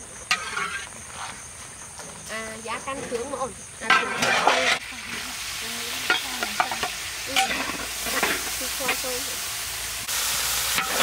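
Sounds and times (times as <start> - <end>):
food sizzling in a pan: 0.0 - 1.4, 2.8 - 11.0
utensil scraping a pan: 0.1 - 2.2, 3.8 - 5.3, 6.0 - 9.1.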